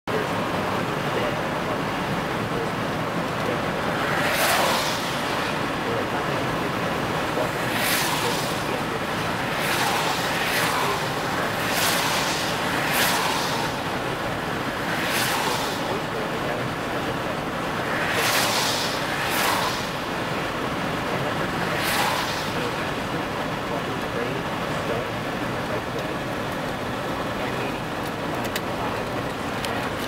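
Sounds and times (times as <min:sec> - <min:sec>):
car road and engine noise: 0:00.0 - 0:30.0
swishes: 0:07.3 - 0:14.0, 0:14.9 - 0:16.0, 0:17.9 - 0:20.2, 0:21.8 - 0:22.8.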